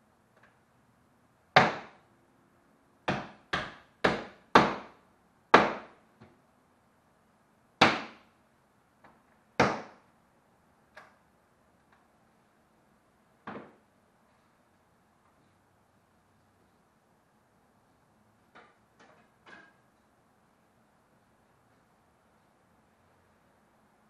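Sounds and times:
hammer blows on wooden frame: 0:01.6 - 0:02.0, 0:03.1 - 0:06.0, 0:07.8 - 0:08.3, 0:09.6 - 0:10.0.

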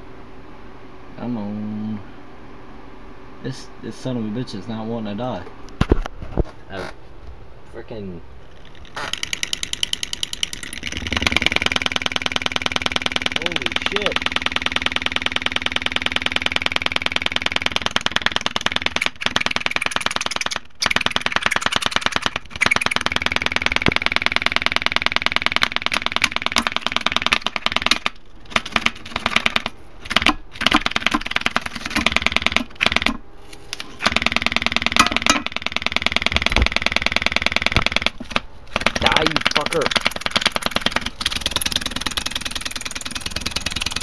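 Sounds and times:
speaker rattling buzz: 0:08.4 - 0:24.1, 0:37.7 - 0:44.0.

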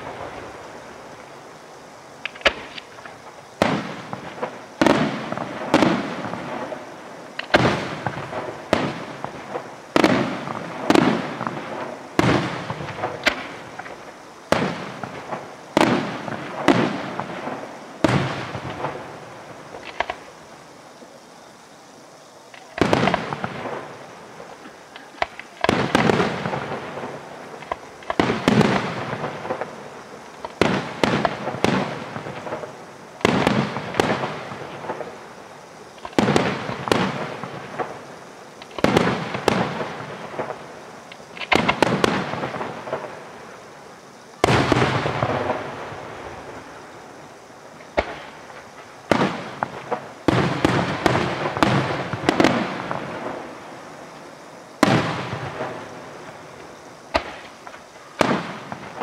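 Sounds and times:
firework shells bursting: 0:02.2 - 0:20.4, 0:22.5 - 0:35.2.

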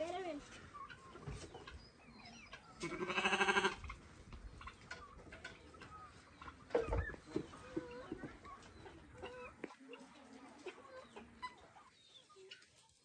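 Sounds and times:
chickens clucking: 0:00.0 - 0:13.0
small birds chirping: 0:00.0 - 0:13.0
animal bleating: 0:02.8 - 0:03.8.

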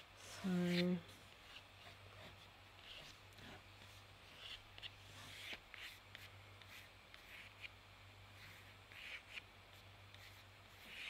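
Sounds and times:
pen scratching on paper: 0:01.5 - 0:07.7, 0:08.4 - 0:11.0.

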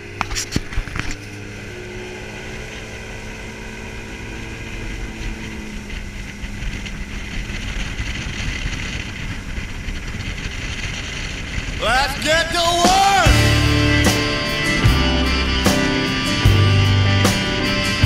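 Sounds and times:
outboard motor running: 0:00.0 - 0:18.0
wind and water rushing: 0:01.4 - 0:14.8.

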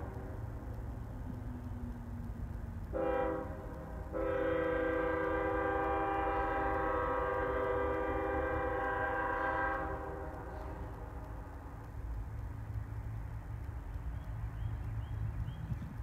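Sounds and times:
locomotive horn blast: 0:02.9 - 0:11.0.

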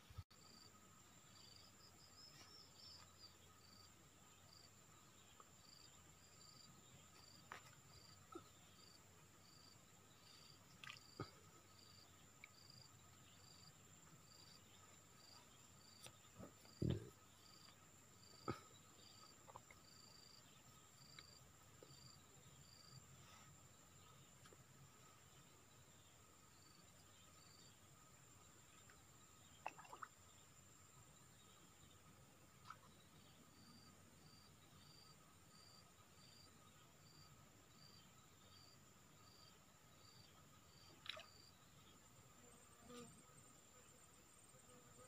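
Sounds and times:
insect chirping: 0:00.0 - 0:45.0
insects buzzing: 0:00.0 - 0:45.0
low thump: 0:16.8 - 0:17.1.

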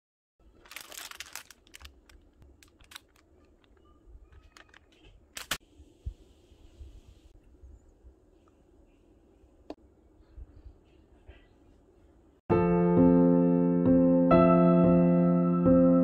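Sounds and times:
plastic packaging crinkling: 0:00.4 - 0:05.6.

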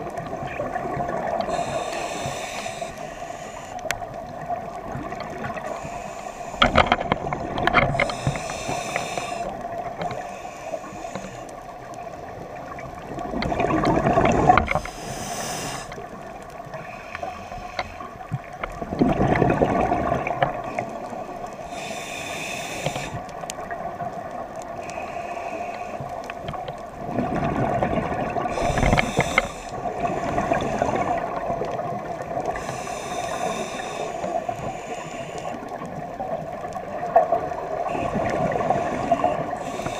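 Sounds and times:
regulator inhale hiss: 0:01.3 - 0:04.2, 0:05.5 - 0:07.2, 0:07.9 - 0:11.8, 0:14.7 - 0:18.4, 0:21.1 - 0:23.5, 0:24.7 - 0:26.5, 0:28.5 - 0:31.6, 0:32.4 - 0:36.0, 0:37.7 - 0:39.9.

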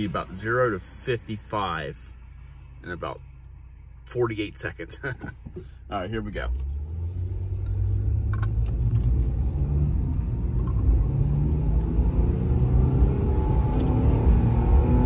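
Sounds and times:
vehicle accelerating: 0:06.5 - 0:15.0.

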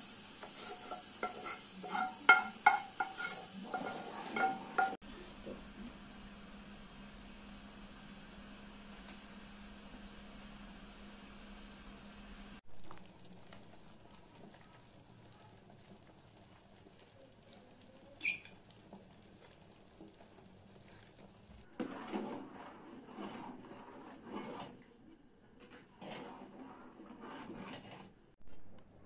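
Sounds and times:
stew simmering and bubbling: 0:00.0 - 0:29.0
metal ladle scraping pot: 0:00.4 - 0:05.0, 0:21.8 - 0:24.9, 0:25.6 - 0:28.2
short high squeak: 0:18.2 - 0:18.5.

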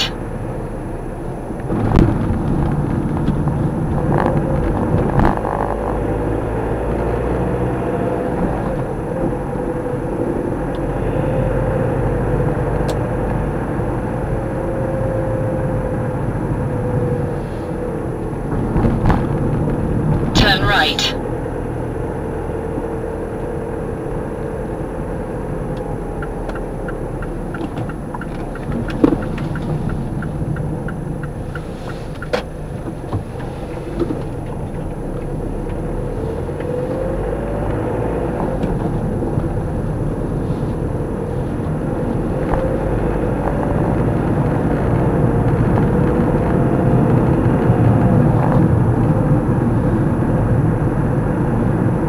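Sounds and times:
car engine and road rumble: 0:00.0 - 0:52.0
light regular ticks: 0:26.2 - 0:35.8.

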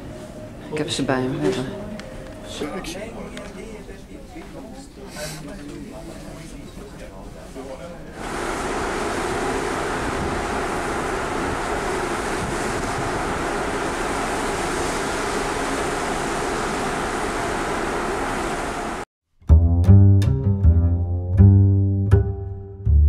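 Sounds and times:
wind: 0:07.6 - 0:19.1
sea rushing: 0:08.2 - 0:19.1.

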